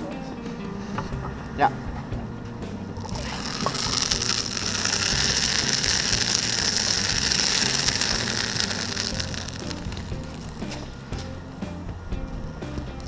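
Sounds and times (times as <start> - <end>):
molten iron pouring crackling hiss: 2.9 - 11.6.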